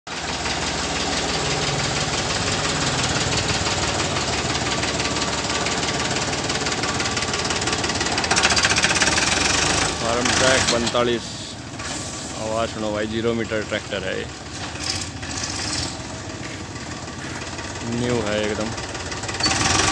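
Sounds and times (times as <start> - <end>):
tractor diesel engine running: 0.1 - 19.9.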